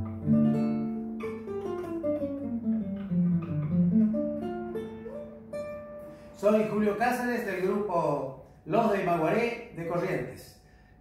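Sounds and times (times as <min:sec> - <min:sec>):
nylon-string guitar fingerpicked: 0:00.0 - 0:08.0.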